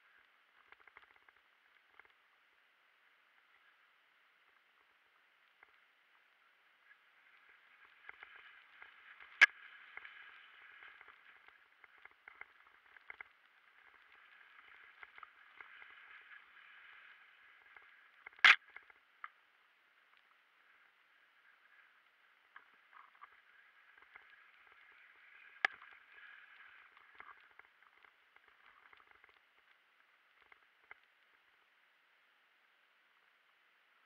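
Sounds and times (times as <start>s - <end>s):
bike rattles and ticks: 0.0s - 2.3s, 6.8s - 19.5s.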